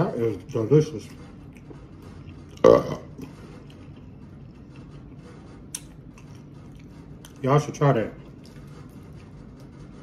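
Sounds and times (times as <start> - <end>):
man belching: 2.6 - 3.2.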